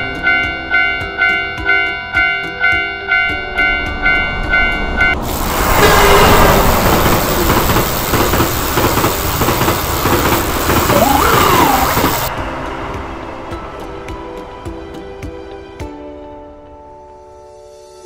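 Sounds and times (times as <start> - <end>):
railroad crossing alarm ringing: 0.0 - 12.3
passing train rushing: 2.4 - 15.6.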